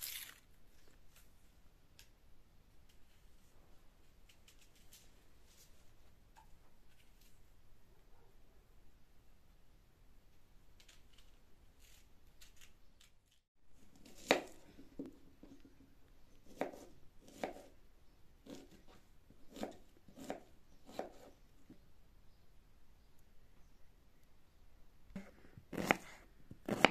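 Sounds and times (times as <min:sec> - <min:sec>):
knife peeling onion: 0:00.0 - 0:00.4, 0:10.8 - 0:14.6, 0:16.4 - 0:17.8, 0:18.4 - 0:21.4, 0:25.2 - 0:26.9.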